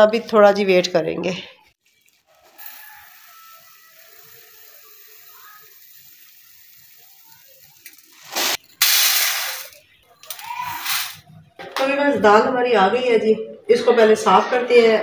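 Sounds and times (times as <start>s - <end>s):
dry lentils pouring into bowl: 2.3s - 9.7s
lentils tipped onto metal tray: 8.1s - 11.2s.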